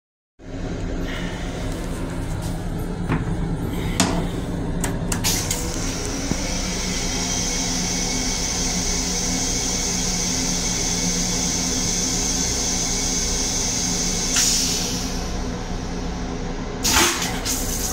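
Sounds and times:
train car hum: 0:00.4 - 0:17.1
toilet clicks and knocks: 0:03.1 - 0:03.4.

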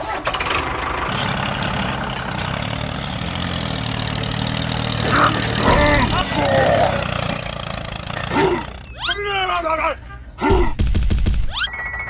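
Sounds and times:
tractor engine starting and running: 0:00.0 - 0:09.3.

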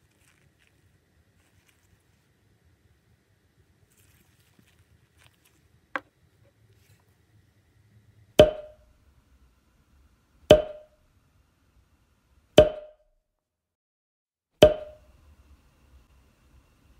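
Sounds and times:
hollow wood-block knocks: 0:08.4 - 0:08.8, 0:10.5 - 0:10.9.

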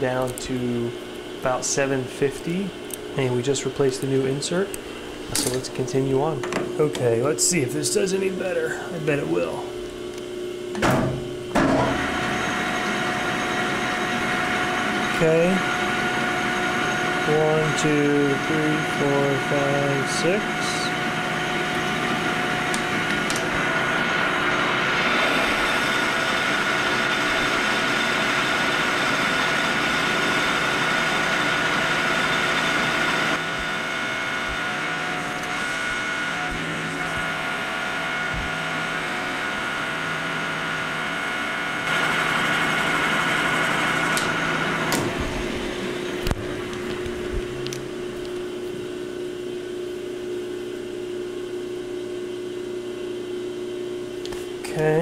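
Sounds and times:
lathe motor and gear whine: 0:00.0 - 0:55.0
metal cutting noise: 0:11.1 - 0:48.4.

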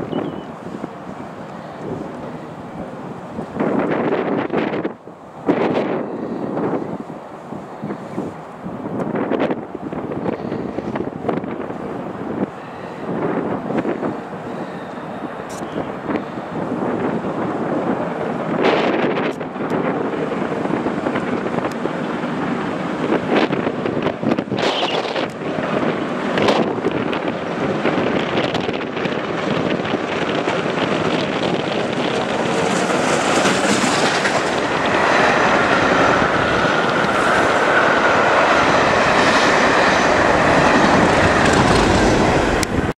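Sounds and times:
steam locomotive passing at speed: 0:00.0 - 0:42.9
wind noise on microphone: 0:00.0 - 0:43.0.

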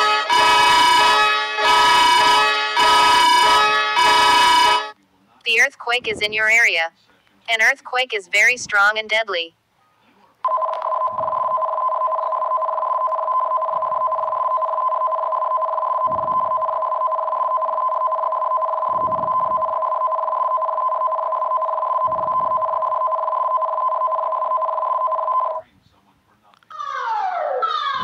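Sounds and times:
emergency alert two-tone signal: 0:00.0 - 0:05.0, 0:10.5 - 0:25.6.

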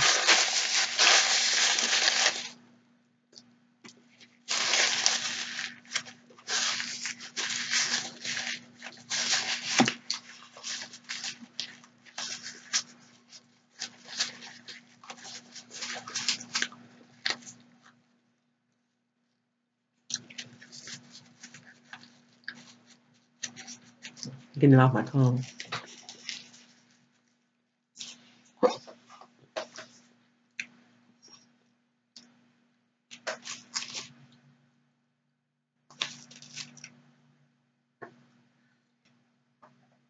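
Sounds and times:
paper napkin crinkling: 0:00.0 - 0:02.6, 0:04.1 - 0:18.0, 0:20.2 - 0:24.4, 0:25.4 - 0:27.4, 0:33.2 - 0:34.2, 0:36.0 - 0:36.9
faint steady hum: 0:00.0 - 0:40.0.

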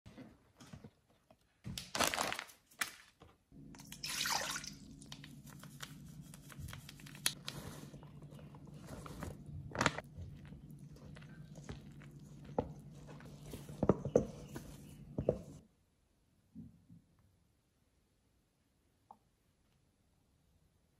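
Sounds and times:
wet mixing: 0:03.7 - 0:15.6.

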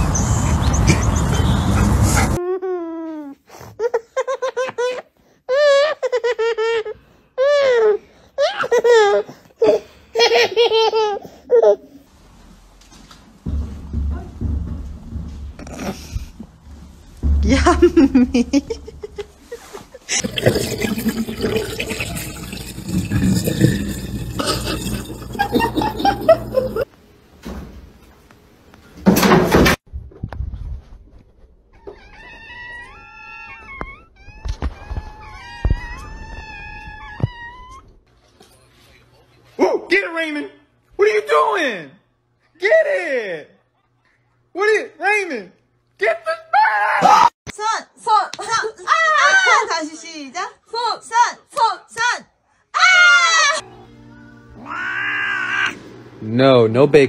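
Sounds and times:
baby laughing: 0:03.8 - 0:12.0, 0:24.4 - 0:26.9
wet cat crying: 0:54.6 - 0:55.8.

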